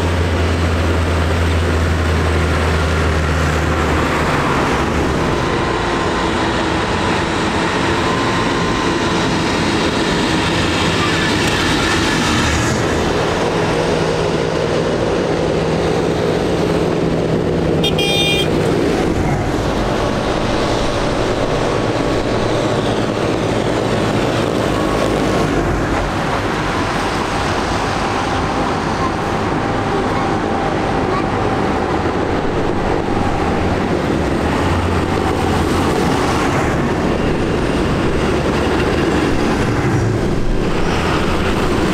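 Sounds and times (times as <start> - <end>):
diesel tractor engines running: 0.0 - 41.9
passing car traffic: 0.0 - 41.9
short high-pitched horn toot: 17.8 - 18.5.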